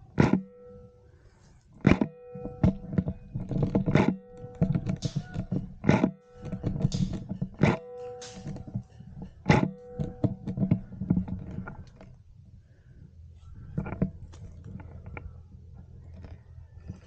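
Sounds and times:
brief ringing tone: 2.0 - 3.4, 7.6 - 10.6.

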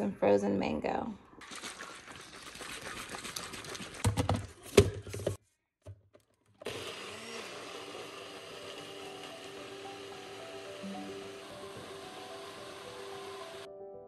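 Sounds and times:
blender whirring: 6.6 - 13.7
background music: 8.2 - 14.0.

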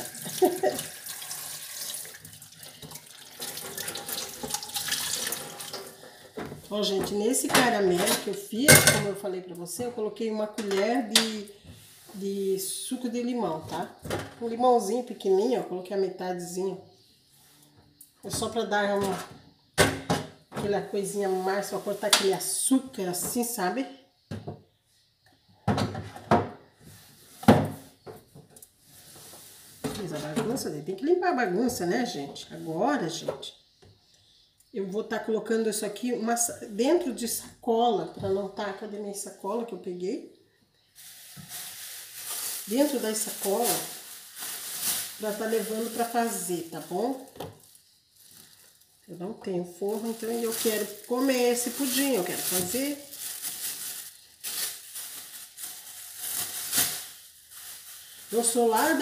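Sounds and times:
tap water running over hands: 0.0 - 6.0
kitchen items knocking on counter: 6.4 - 9.2.

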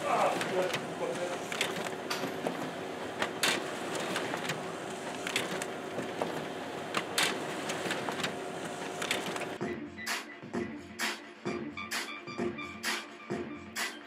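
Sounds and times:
printer clicks: 0.0 - 9.6
printer whirring: 0.0 - 9.6.

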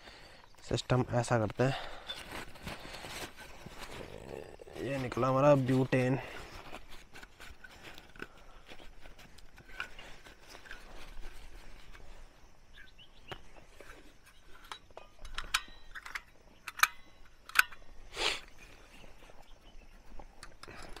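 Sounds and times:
pouch rustling: 1.6 - 14.7
sharp metal clicks: 14.7 - 17.9.

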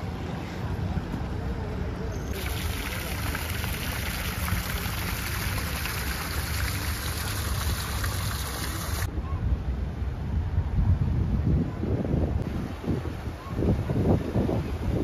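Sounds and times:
fountain water splashing into basin: 2.3 - 9.1
wind rumble on microphone: 7.5 - 15.0.

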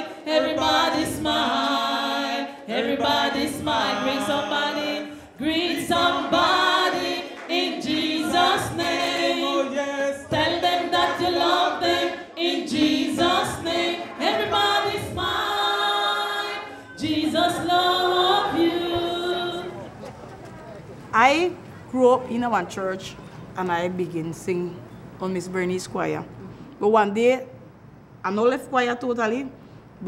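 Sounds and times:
congregation singing in harmony: 0.0 - 20.0.

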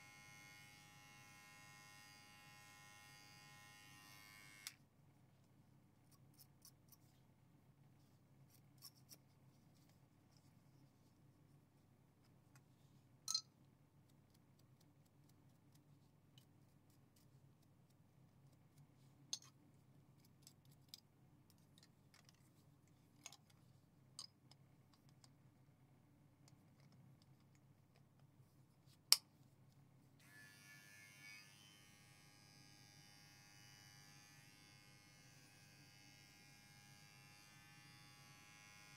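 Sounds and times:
electric hair clipper buzzing: 0.0 - 4.8, 30.2 - 38.9.

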